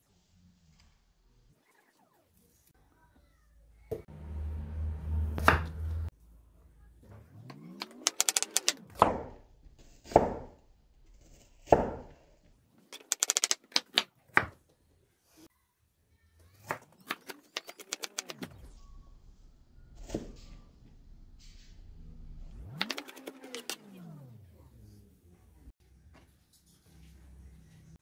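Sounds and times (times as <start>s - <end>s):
knife chopping on wooden board: 5.4s - 5.9s, 9.0s - 9.4s, 10.0s - 10.6s, 11.6s - 12.2s.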